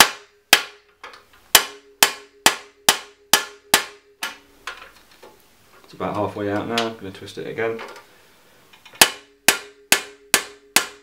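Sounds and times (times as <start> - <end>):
hammer striking metal bar: 0.0 - 0.9, 1.5 - 4.4, 9.0 - 11.0.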